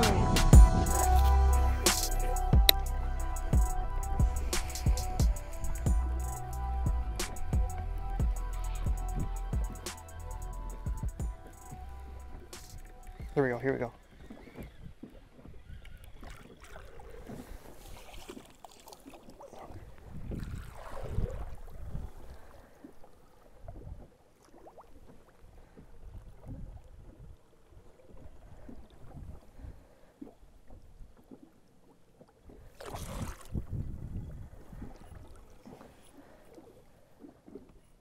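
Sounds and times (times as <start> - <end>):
water swishing beside boat: 0.0 - 38.0
wind buffeting microphone: 19.7 - 22.5, 33.0 - 35.4.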